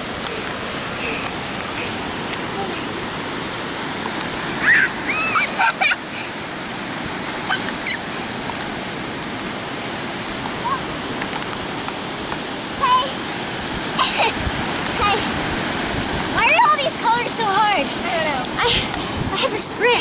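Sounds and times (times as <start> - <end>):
ocean surf washing ashore: 0.0 - 20.0
children shouting and squealing: 4.6 - 6.0, 7.4 - 8.1.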